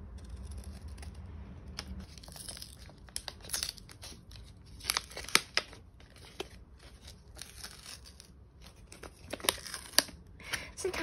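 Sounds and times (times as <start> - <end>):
paper packet crinkling and tearing: 2.0 - 10.2.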